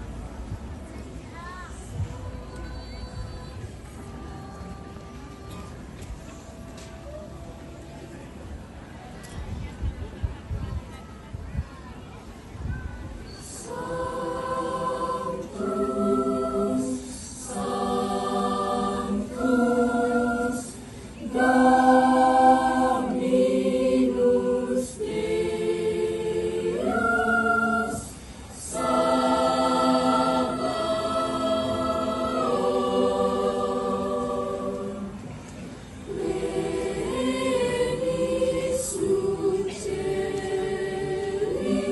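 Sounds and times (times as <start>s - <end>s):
mixed choir singing chords: 13.4s - 41.9s.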